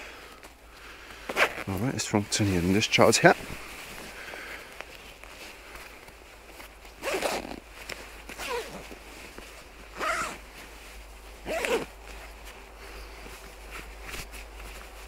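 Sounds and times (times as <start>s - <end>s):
zipper pulled: 1.3s - 1.8s, 6.9s - 9.1s, 9.9s - 10.6s, 11.4s - 12.2s.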